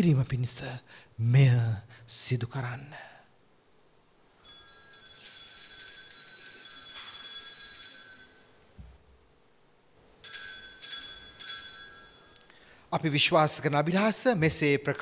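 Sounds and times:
small bells jangling: 0:04.3 - 0:08.8, 0:10.2 - 0:12.8.

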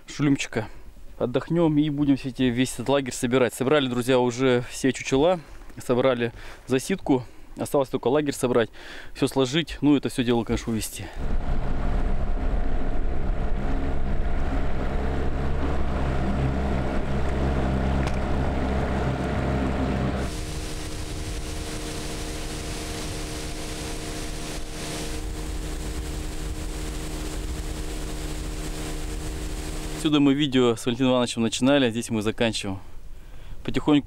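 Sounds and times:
motorboat engine humming: 0:11.2 - 0:30.6.

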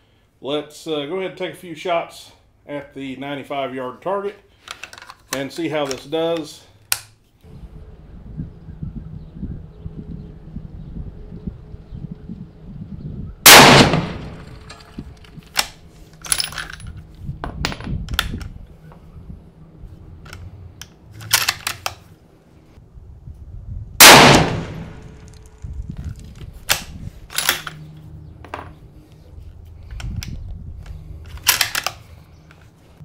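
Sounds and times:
metallic clicks of rifle bolt: 0:04.6 - 0:07.2, 0:13.7 - 0:17.0, 0:20.2 - 0:22.1, 0:24.1 - 0:27.8, 0:29.8 - 0:32.7
rifle shots: 0:13.4 - 0:14.7, 0:24.0 - 0:25.2.

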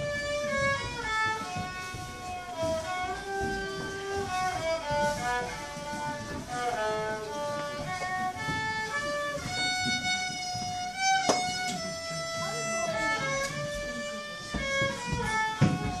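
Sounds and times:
solo fiddle melody: 0:00.0 - 0:16.0
sharp knock: 0:10.6 - 0:11.7.

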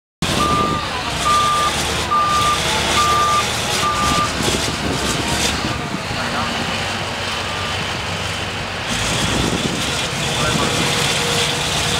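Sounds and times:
diesel truck engine running: 0:00.2 - 0:11.9
backup alarm beeping: 0:00.4 - 0:04.3.

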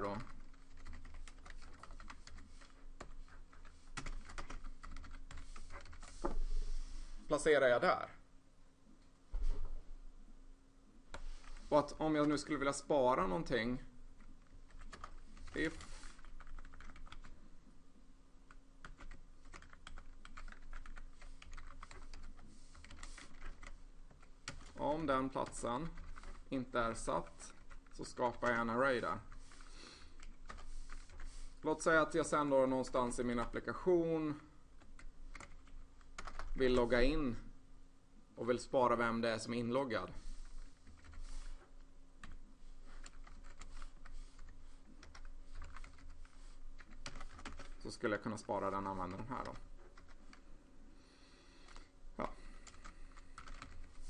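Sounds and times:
keyboard typing: 0:00.0 - 0:06.2, 0:14.4 - 0:17.4, 0:18.5 - 0:24.8, 0:25.4 - 0:26.5, 0:27.2 - 0:28.7, 0:29.5 - 0:31.3, 0:34.8 - 0:36.6, 0:40.5 - 0:41.4, 0:42.2 - 0:47.8, 0:49.1 - 0:50.4, 0:52.6 - 0:54.0.

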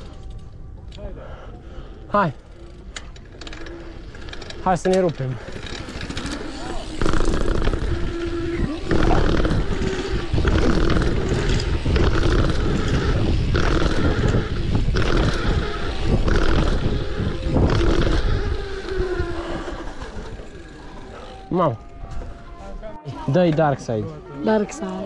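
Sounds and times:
road and tyre noise: 0:02.1 - 0:21.8
wind buffeting microphone: 0:04.5 - 0:22.9.

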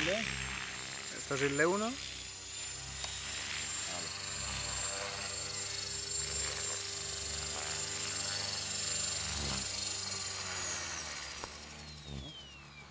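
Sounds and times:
rc helicopter rotor whine: 0:00.0 - 0:12.9.

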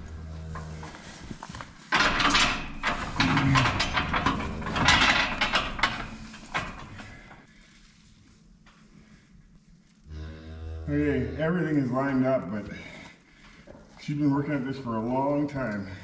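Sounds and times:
steel gates clattering and banging: 0:01.9 - 0:07.4.

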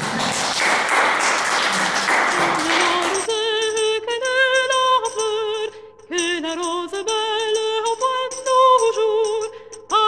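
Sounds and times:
applause: 0:00.0 - 0:03.3
music: 0:00.2 - 0:10.0
person singing with vibrato: 0:01.6 - 0:10.0.

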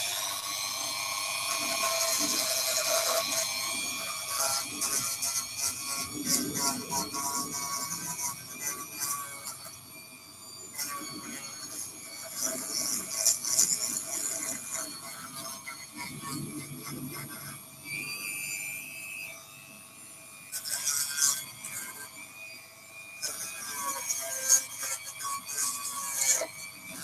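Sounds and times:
rotary tool motor whine: 0:00.0 - 0:27.0
sanding rasp on cork: 0:01.6 - 0:09.6, 0:20.6 - 0:22.0, 0:23.2 - 0:27.0.

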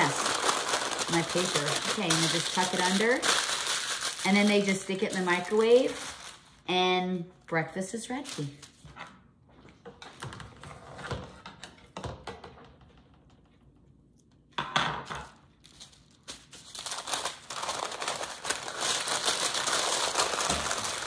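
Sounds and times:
parchment paper crinkling: 0:00.0 - 0:06.7, 0:15.6 - 0:21.0.

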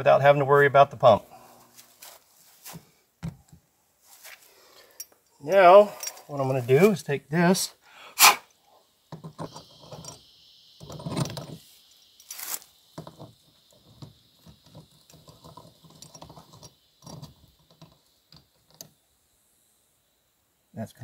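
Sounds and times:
fitting clicking and rattling: 0:13.0 - 0:19.0.

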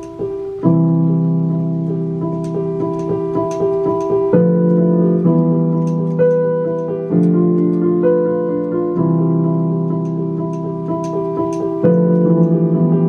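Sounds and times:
electric piano chords: 0:00.0 - 0:13.0
faint light ticks: 0:02.3 - 0:07.9, 0:09.9 - 0:12.6.

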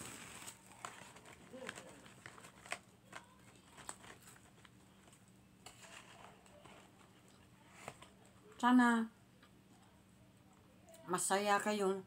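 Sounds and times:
fingers crinkling cardboard box: 0:00.0 - 0:07.2.

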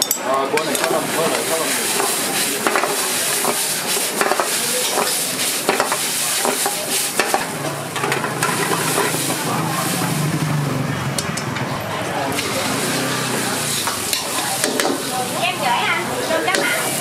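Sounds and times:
chopsticks clicking and scraping pan: 0:00.1 - 0:10.2, 0:13.7 - 0:15.1, 0:16.2 - 0:16.9
noodles sizzling in a wok: 0:00.6 - 0:10.8, 0:12.3 - 0:17.0.

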